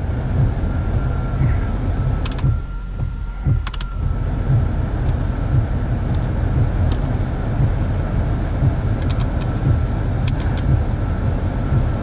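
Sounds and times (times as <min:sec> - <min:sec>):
car engine idling: 0:00.0 - 0:12.0
knob clicks: 0:02.2 - 0:02.6, 0:03.5 - 0:04.0, 0:09.0 - 0:09.6, 0:10.2 - 0:10.8.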